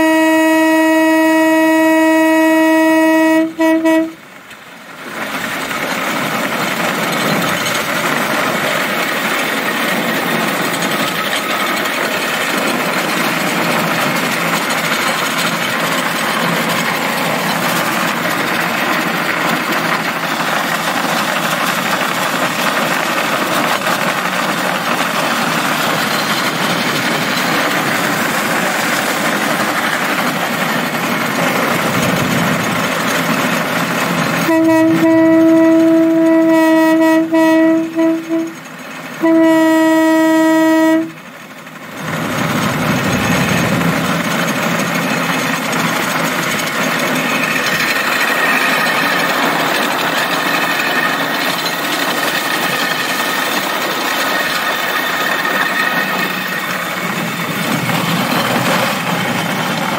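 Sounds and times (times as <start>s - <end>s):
steel wheels rumbling on rails: 0.0s - 59.9s.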